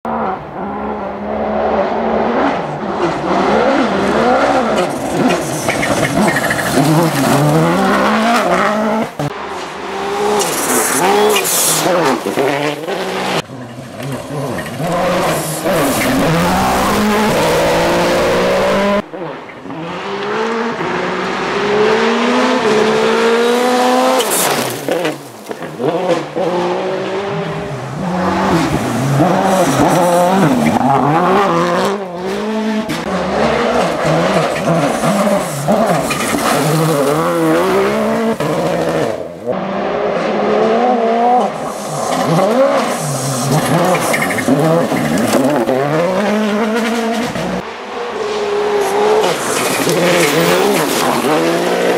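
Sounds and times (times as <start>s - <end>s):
rally car engine at full throttle: 0.0s - 51.9s
tyres on gravel: 4.6s - 19.0s, 27.7s - 39.3s, 41.5s - 51.9s.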